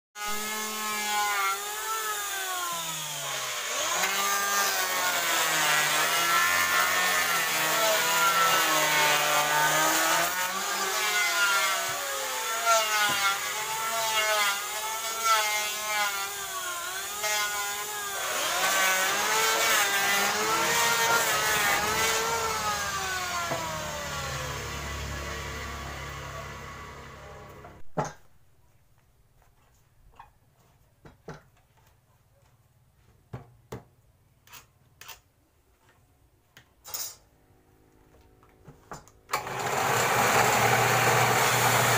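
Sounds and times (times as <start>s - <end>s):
power saw cutting wood: 0.2s - 27.8s, 39.3s - 41.9s.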